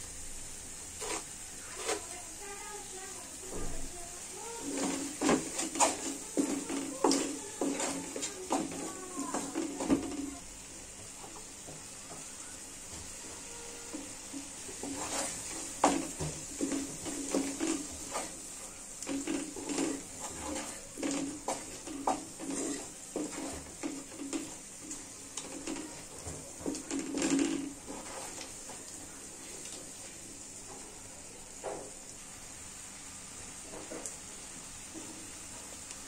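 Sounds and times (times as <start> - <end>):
faint hiss: 0.0 - 36.0
spatula scraping metal wok: 0.8 - 2.4, 4.4 - 10.4, 13.1 - 28.7.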